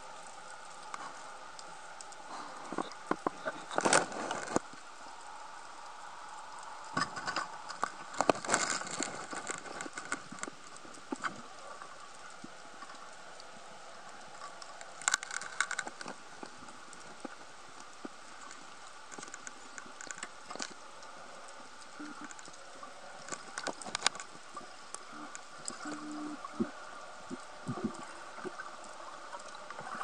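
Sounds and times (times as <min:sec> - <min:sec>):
faint steady hiss: 0:00.0 - 0:30.0
underwater clicks and knocks: 0:02.7 - 0:04.7.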